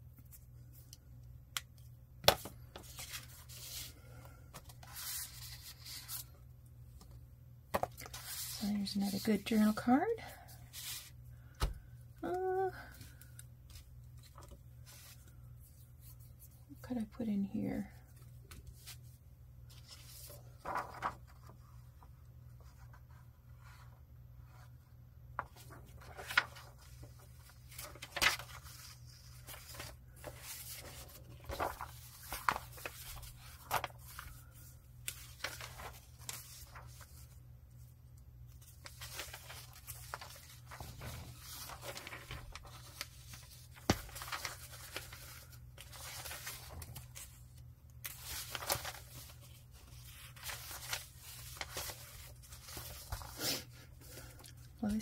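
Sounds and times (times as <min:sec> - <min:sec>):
paper rustling: 0:02.2 - 0:06.4, 0:07.0 - 0:09.8, 0:10.4 - 0:11.8, 0:18.1 - 0:21.8, 0:25.4 - 0:37.9, 0:38.5 - 0:55.0.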